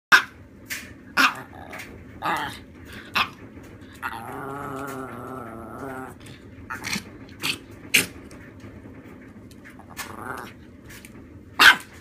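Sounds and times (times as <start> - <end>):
small dog barking: 0.1 - 0.3, 1.2 - 1.5, 11.6 - 11.9
dog growling: 1.2 - 8.2, 9.7 - 10.7.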